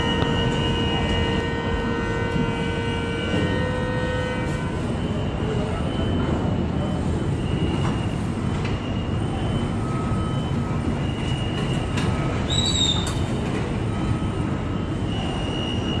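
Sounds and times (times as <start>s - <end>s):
construction site rumble: 0.0s - 16.0s
high squeal: 12.5s - 13.3s.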